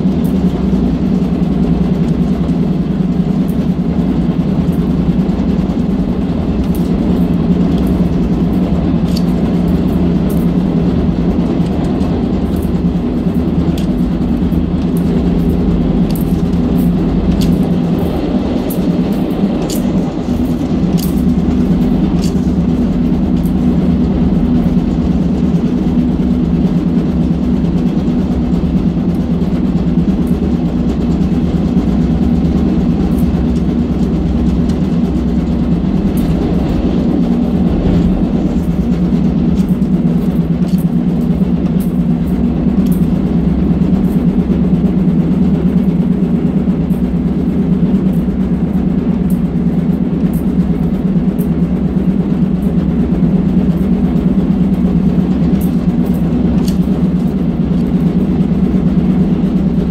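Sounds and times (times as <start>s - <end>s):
locomotive engine and wheels droning: 0.0s - 59.9s
light clicks and rattles: 4.6s - 25.7s.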